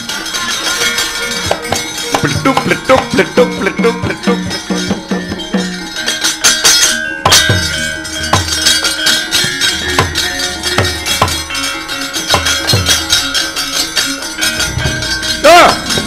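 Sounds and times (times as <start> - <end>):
metallic clanks: 0.0 - 16.0
ringing metallophone tones: 0.0 - 16.0
deep drum strokes: 14.6 - 16.0.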